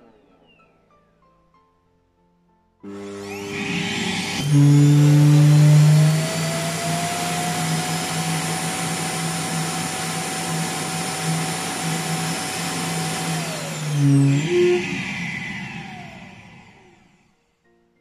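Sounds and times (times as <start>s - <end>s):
loud suction motor whine: 2.8s - 17.2s.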